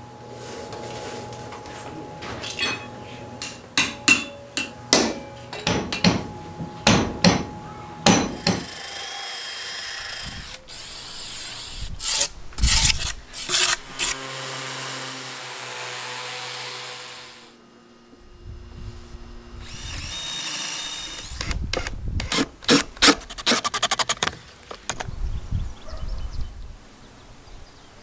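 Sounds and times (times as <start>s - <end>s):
hammer ringing on anvil: 2.4s - 8.7s
orbital sander humming: 2.9s - 21.6s.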